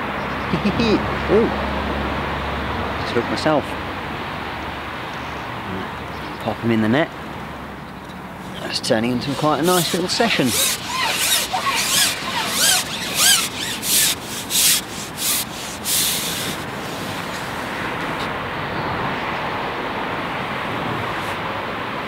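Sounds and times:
quick rubbing strokes: 8.4 - 18.3.

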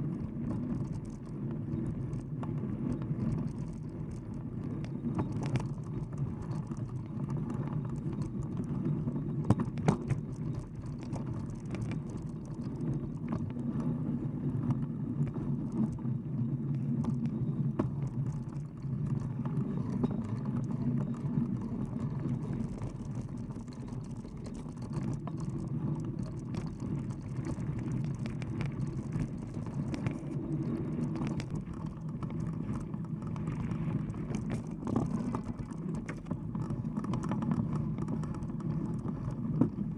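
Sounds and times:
bike tyre rolling on dirt: 0.0 - 39.9
bike rattles and knocks: 3.2 - 13.6.

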